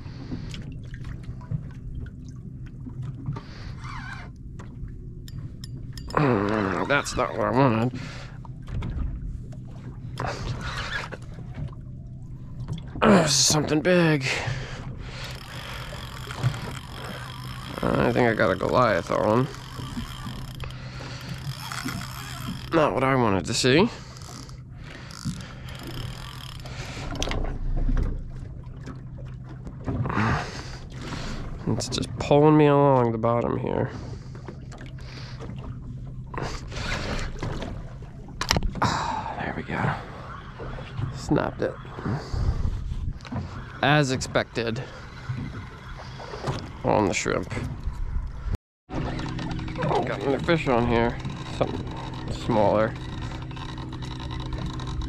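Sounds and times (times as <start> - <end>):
low rumble: 0.0 - 21.6, 37.8 - 46.8, 47.4 - 55.0
low steady hum: 0.0 - 55.0
water lapping against boat hull: 0.0 - 55.0
fishing reel clicking: 15.2 - 22.8, 24.0 - 27.4, 49.2 - 55.0.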